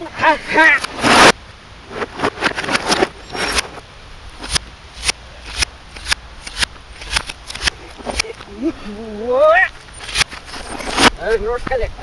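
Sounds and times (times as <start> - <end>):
reversed hammer strikes: 0.8 - 3.8, 4.4 - 8.4, 9.7 - 11.2.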